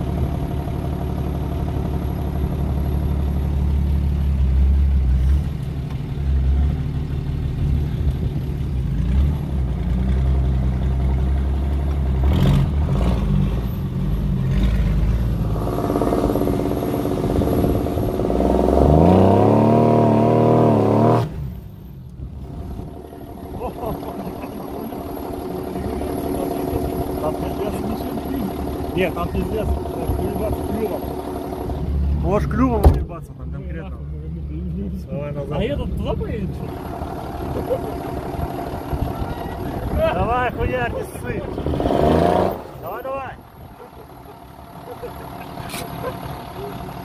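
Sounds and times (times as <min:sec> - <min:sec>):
engine running and revving: 0:00.0 - 0:47.0
engine knocks: 0:22.7 - 0:33.5.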